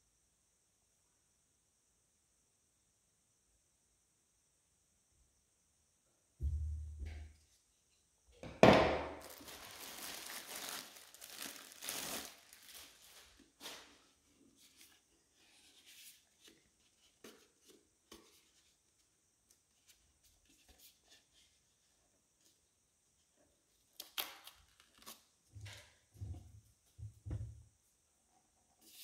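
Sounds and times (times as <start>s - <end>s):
plastic wrapping crinkling: 9.2s - 14.8s.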